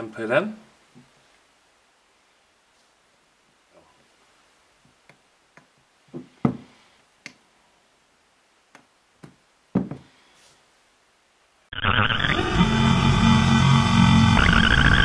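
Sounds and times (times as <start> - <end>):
distorted guitar music: 11.7 - 15.0.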